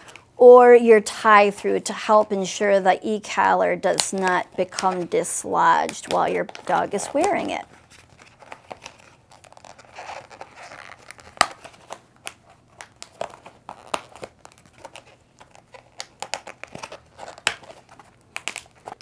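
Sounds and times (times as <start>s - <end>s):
plastic crinkling and snapping: 5.8s - 19.0s.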